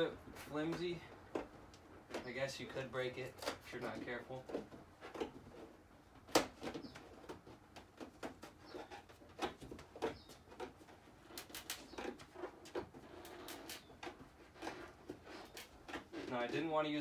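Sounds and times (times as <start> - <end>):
short high squeaks: 8.6 - 16.6.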